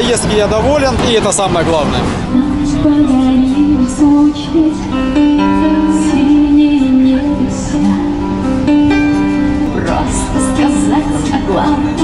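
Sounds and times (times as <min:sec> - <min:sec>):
guitar: 0:00.0 - 0:12.0
woman singing a slow song: 0:02.2 - 0:08.9, 0:09.6 - 0:12.0.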